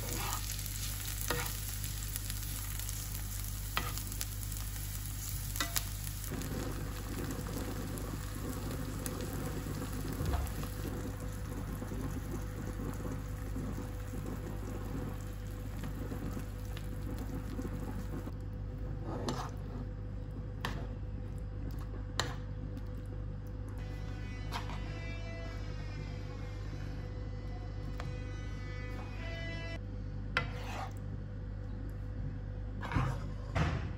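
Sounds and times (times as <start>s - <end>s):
food sizzling in a frying pan: 0.0s - 18.3s.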